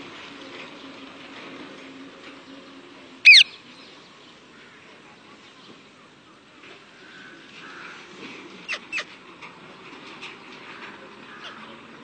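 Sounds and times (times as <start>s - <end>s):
parakeet screeching: 3.3s - 3.6s
short sharp bird calls: 3.3s - 3.6s.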